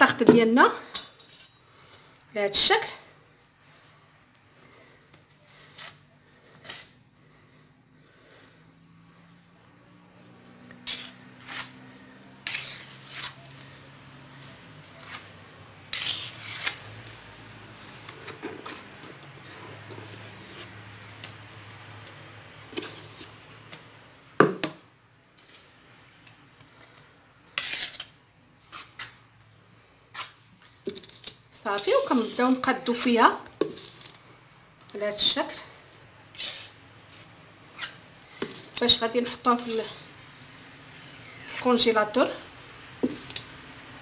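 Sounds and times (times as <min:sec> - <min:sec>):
spatula scraping metal ring: 0:00.8 - 0:01.6, 0:05.5 - 0:07.0, 0:10.7 - 0:14.0, 0:15.9 - 0:17.0, 0:33.6 - 0:34.2, 0:36.3 - 0:41.8, 0:43.0 - 0:43.5.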